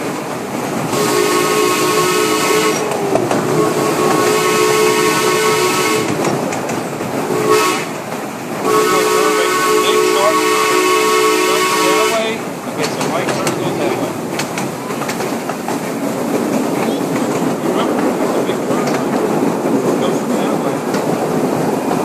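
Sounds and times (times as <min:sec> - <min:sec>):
train rumbling on track: 0:00.0 - 0:22.0
steam whistle blasts: 0:00.9 - 0:06.2, 0:07.3 - 0:07.9, 0:08.6 - 0:12.3.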